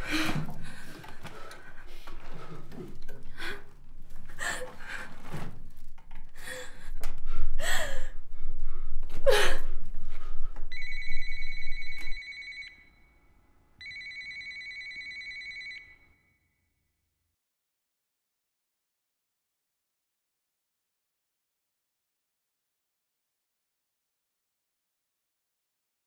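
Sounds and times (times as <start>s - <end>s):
telephone ringing: 10.7s - 13.0s, 13.8s - 16.2s.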